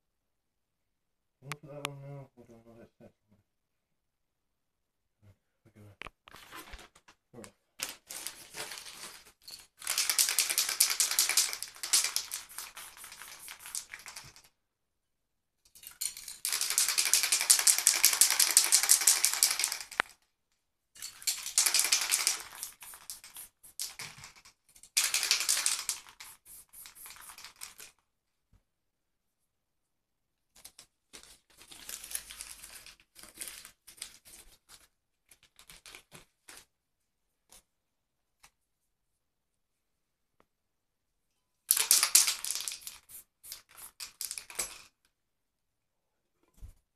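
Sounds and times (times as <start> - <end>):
spray paint can hissing: 9.8 - 14.4, 16.4 - 20.0, 21.3 - 24.2, 25.0 - 27.9, 41.7 - 44.6.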